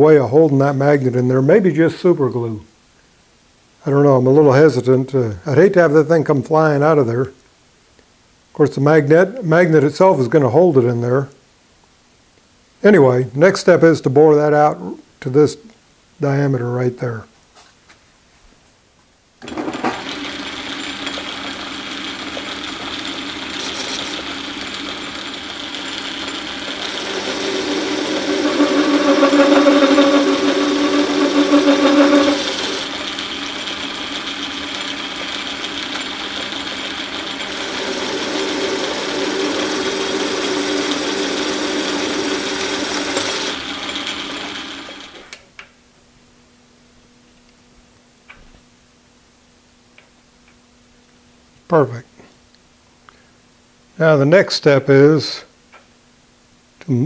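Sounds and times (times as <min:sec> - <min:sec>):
metal lathe cutting: 0:19.4 - 0:45.3.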